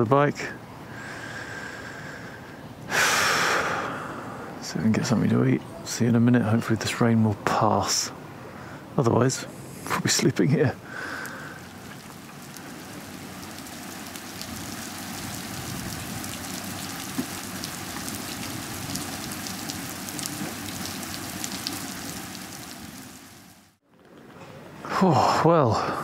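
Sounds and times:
raindrops ticking: 0:10.8 - 0:23.7
rain on pavement: 0:10.8 - 0:23.8.

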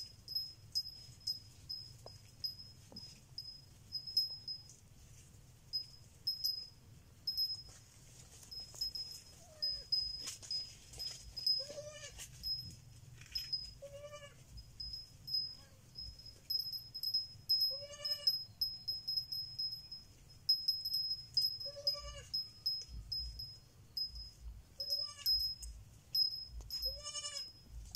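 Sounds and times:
baby goat bleating: 0:11.6 - 0:12.2, 0:13.8 - 0:14.4, 0:17.7 - 0:18.3, 0:21.7 - 0:22.3, 0:25.0 - 0:25.3, 0:26.9 - 0:27.5.

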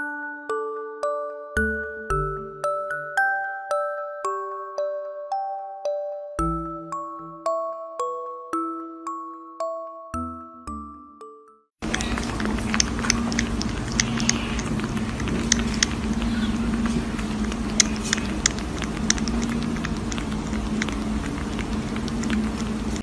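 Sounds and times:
kitten sucking from a bottle: 0:11.8 - 0:23.0
steady low hum: 0:11.8 - 0:23.0.

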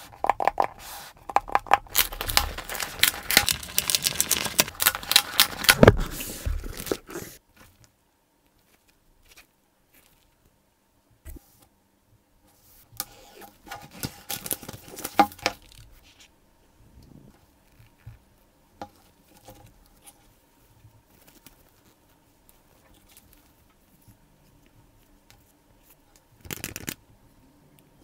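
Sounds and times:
cardboard box crackling and tearing: 0:01.9 - 0:07.4
paper rustling: 0:01.9 - 0:07.8.

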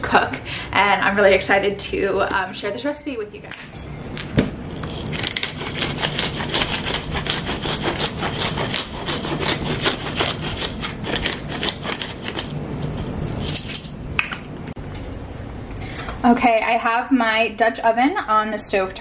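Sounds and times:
pepper mill grinding: 0:04.2 - 0:14.0.

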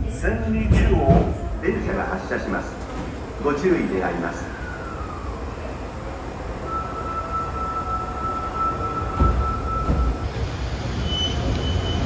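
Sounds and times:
subway train rumbling: 0:00.0 - 0:12.0.

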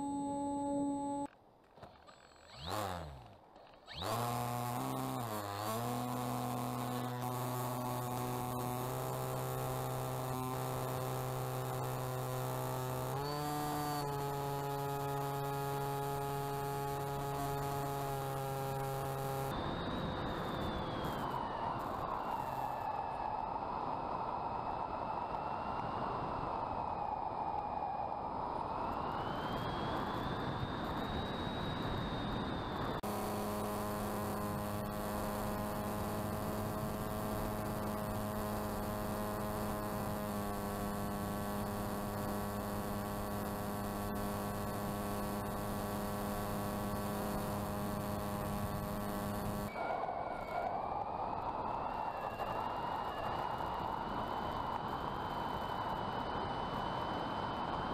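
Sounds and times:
steady motor hum: 0:00.0 - 0:01.3, 0:02.0 - 0:22.4, 0:32.2 - 0:49.8
electric motor and propeller whine: 0:00.0 - 0:57.9.

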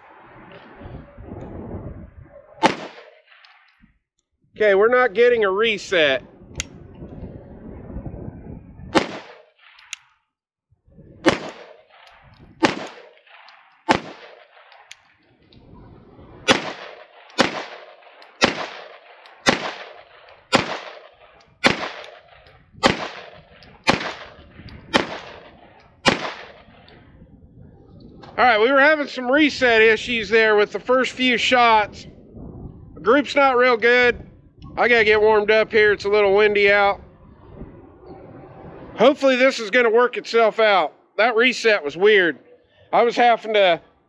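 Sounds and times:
pistol shots: 0:02.6 - 0:03.8, 0:08.9 - 0:10.0, 0:11.2 - 0:15.2, 0:16.4 - 0:27.0.

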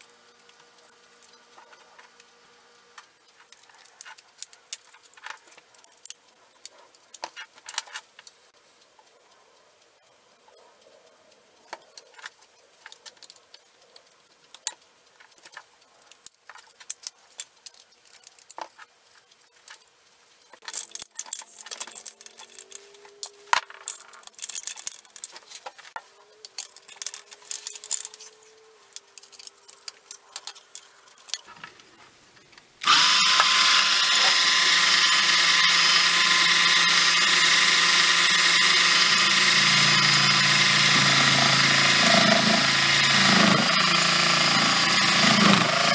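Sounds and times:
plastic and metal parts clicking: 0:03.0 - 0:08.4, 0:11.7 - 0:38.6
small electric motor whining: 0:32.8 - 0:45.9.

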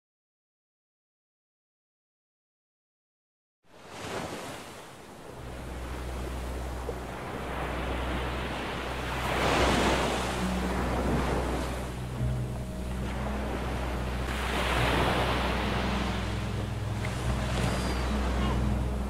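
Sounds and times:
surf washing on shore: 0:03.7 - 0:19.0
steady low hum: 0:05.1 - 0:19.0.

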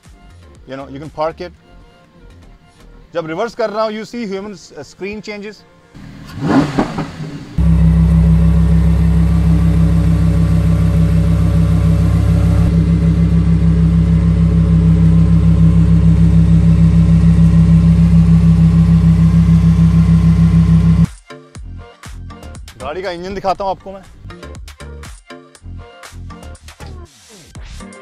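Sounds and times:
sports car engine idling: 0:06.0 - 0:21.1.

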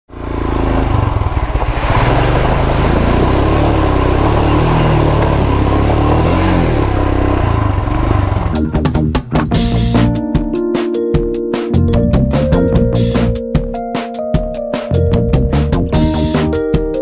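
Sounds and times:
water splashing around wheels: 0:00.1 - 0:08.6
motorcycle engine revving: 0:00.1 - 0:09.9.

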